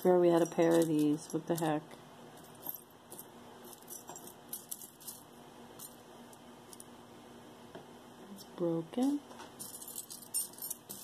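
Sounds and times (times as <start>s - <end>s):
metal jewelry clinking: 0.0s - 6.9s, 9.6s - 11.0s.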